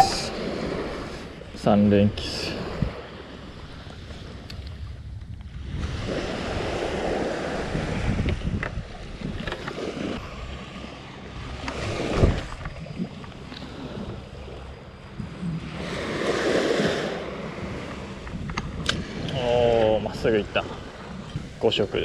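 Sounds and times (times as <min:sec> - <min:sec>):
wind buffeting microphone: 0:00.0 - 0:22.0
small waves washing on sand: 0:05.5 - 0:22.0.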